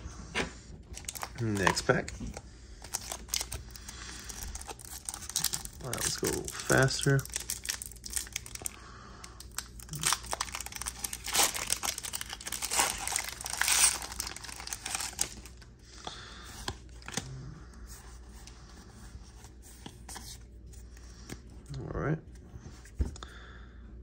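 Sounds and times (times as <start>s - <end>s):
foil wrapper crinkling and tearing: 0.9s - 2.1s, 2.8s - 8.8s, 9.4s - 15.6s.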